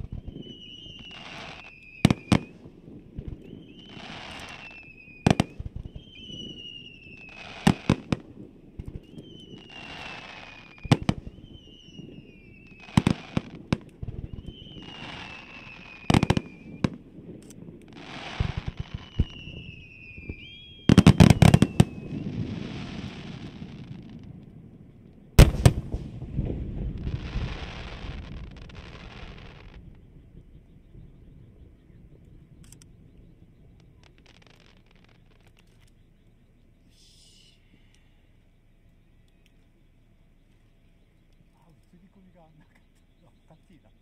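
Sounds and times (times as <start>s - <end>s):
falling firework whistle: 0.0s - 2.6s, 3.2s - 8.2s, 8.8s - 17.0s, 18.0s - 24.3s
firework hiss: 0.0s - 2.6s, 3.5s - 8.2s, 9.4s - 13.7s, 14.3s - 16.9s, 17.9s - 24.0s
firework bangs: 0.0s - 24.8s, 25.4s - 30.5s.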